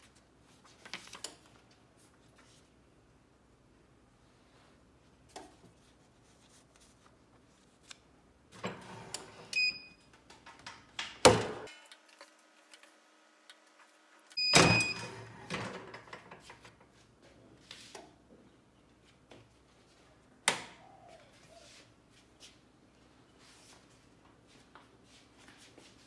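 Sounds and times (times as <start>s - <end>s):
paper rustling: 0.0s - 2.7s, 5.6s - 8.0s
short electronic beep: 14.2s - 15.1s.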